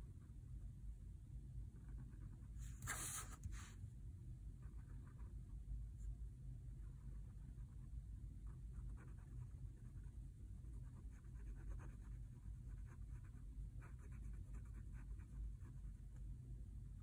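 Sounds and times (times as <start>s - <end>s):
steady low hum: 0.0s - 17.0s
pen scratching on paper: 1.8s - 3.5s, 8.5s - 10.1s, 10.7s - 16.0s.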